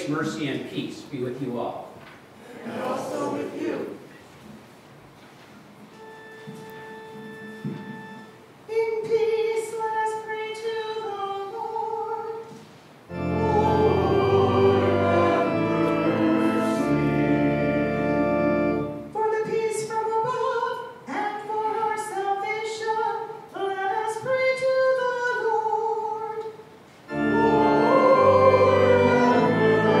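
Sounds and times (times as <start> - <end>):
organ chords: 5.9 - 8.5, 13.1 - 19.4, 27.1 - 30.0
woman singing: 8.7 - 12.5, 19.1 - 26.5.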